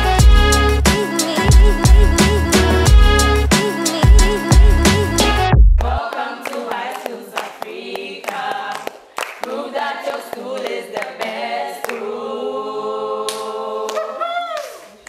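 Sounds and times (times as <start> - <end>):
choir singing a cappella: 0.0 - 14.4
hands clapping: 5.8 - 12.1, 13.3 - 15.0.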